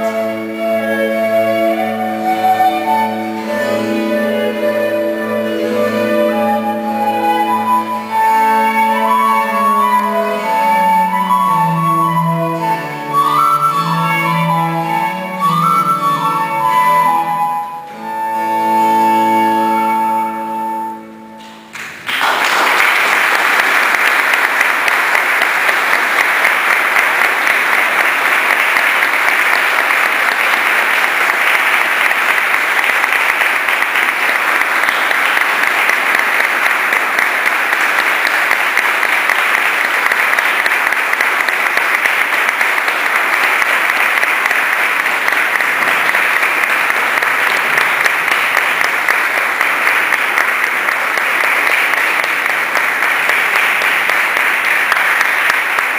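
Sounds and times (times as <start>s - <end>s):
music: 0.0s - 22.1s
audience applauding: 21.4s - 55.9s.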